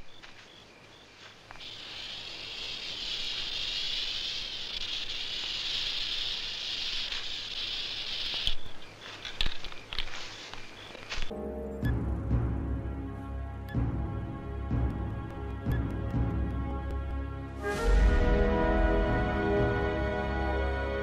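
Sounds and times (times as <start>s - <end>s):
music: 11.3s - 21.0s.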